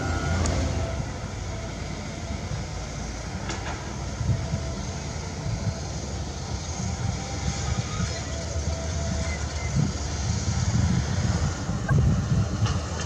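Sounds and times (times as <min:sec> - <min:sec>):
diesel roller engines rumbling: 0:00.0 - 0:13.0.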